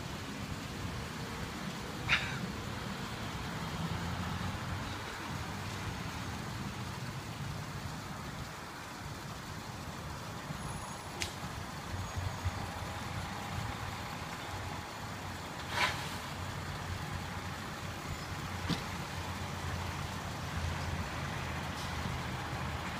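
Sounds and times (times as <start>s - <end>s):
vehicle engines idling: 0.0s - 22.9s
short hiss: 15.6s - 16.4s.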